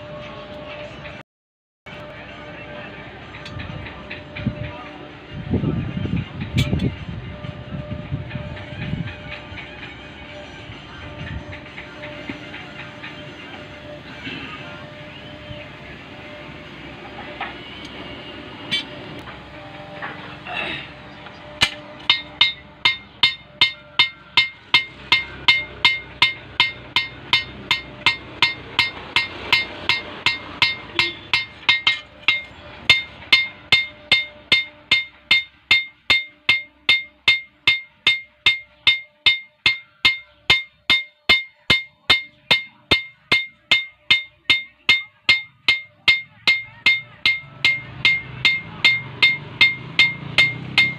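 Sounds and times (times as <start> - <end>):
hammer striking steel on anvil: 21.6 - 50.9.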